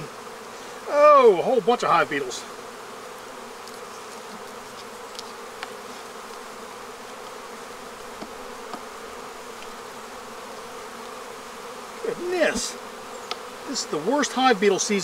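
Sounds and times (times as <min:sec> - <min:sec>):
honeybees buzzing: 0:00.0 - 0:15.0
faint ticks: 0:09.6 - 0:09.8, 0:13.2 - 0:13.5.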